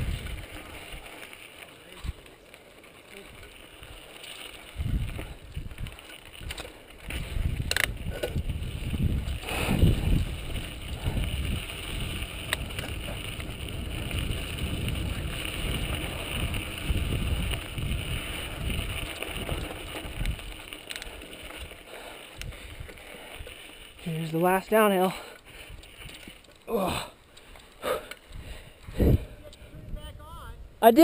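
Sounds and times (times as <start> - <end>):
wind buffeting microphone: 0.0 - 1.1, 4.6 - 24.6, 28.2 - 31.0
tyres rumbling on dirt: 0.0 - 27.2.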